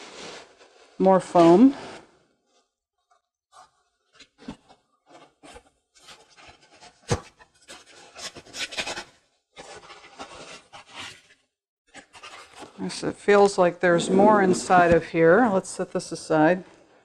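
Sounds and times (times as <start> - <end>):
foam scraping against plastic: 0.0 - 2.7, 3.5 - 13.0.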